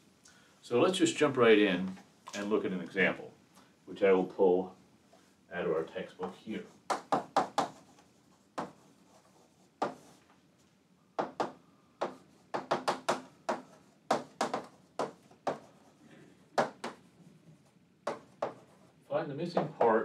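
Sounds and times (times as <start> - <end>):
chalk tapping on chalkboard: 6.2 - 10.2, 11.2 - 15.9, 16.6 - 17.1, 18.0 - 18.8.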